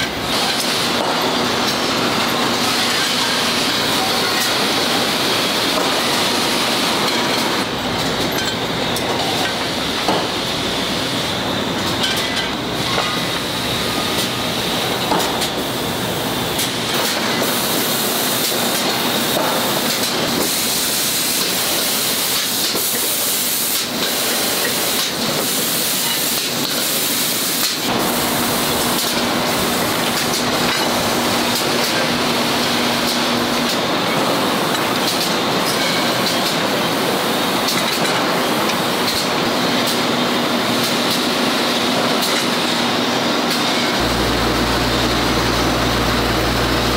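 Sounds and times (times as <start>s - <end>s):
machinery hiss: 0.0s - 46.9s
low machinery hum: 44.0s - 46.9s.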